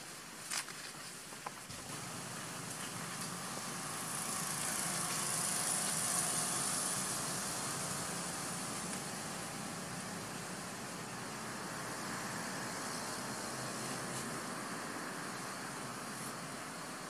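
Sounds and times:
vehicle engine running: 1.7 - 17.0.

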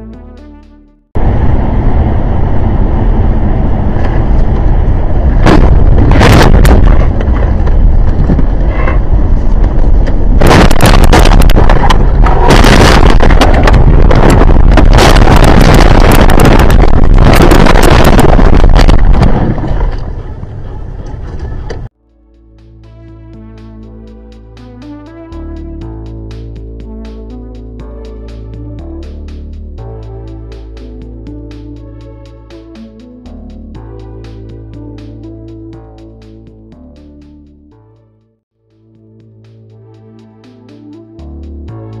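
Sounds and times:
car rumbling: 1.2 - 21.9.

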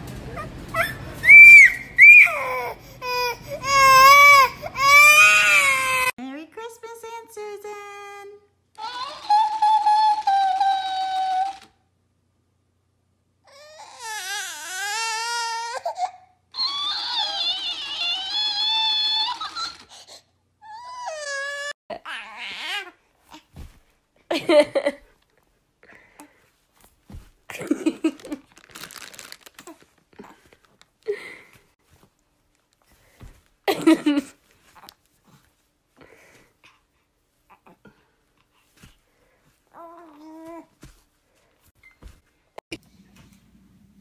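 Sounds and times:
toddler crying: 0.3 - 6.2, 8.8 - 11.6, 13.5 - 20.0, 20.6 - 22.9
plush toy crinkling and rustling: 10.2 - 11.7, 16.7 - 19.9, 26.6 - 33.7
toy playing high-pitched whine: 16.6 - 19.9.

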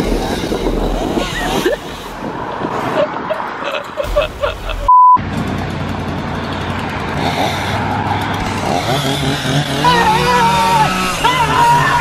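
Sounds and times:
street traffic: 0.0 - 12.0
censor beep tone: 4.9 - 5.2.

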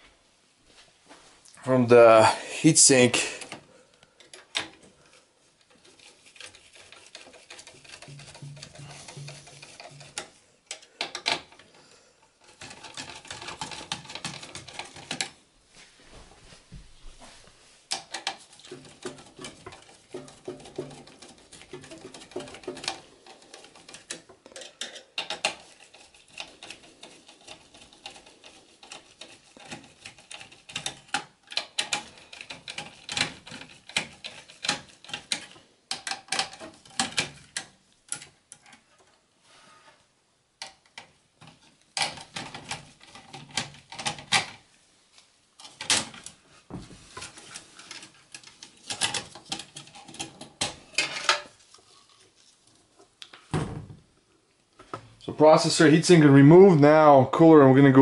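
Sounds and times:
screwdriver clicks and metal taps: 7.1 - 11.7, 17.9 - 39.2.

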